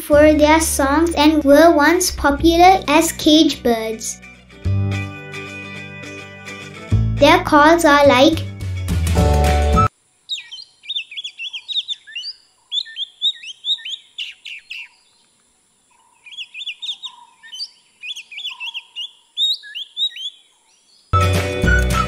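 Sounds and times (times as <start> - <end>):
bird whistling song: 9.8 - 15.2, 16.1 - 22.0.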